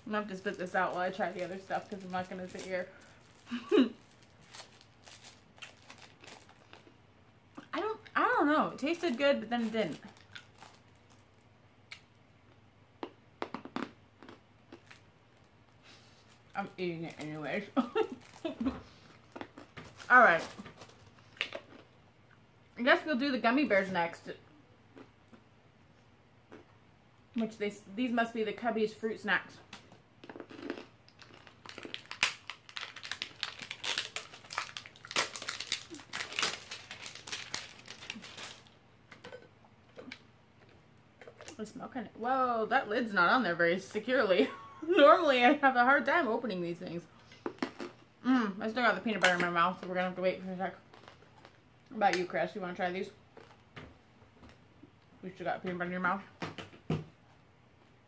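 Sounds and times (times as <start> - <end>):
candy packaging crinkling: 0.0 - 7.0, 7.6 - 11.5, 14.2 - 21.9, 29.7 - 39.4, 50.8 - 51.6.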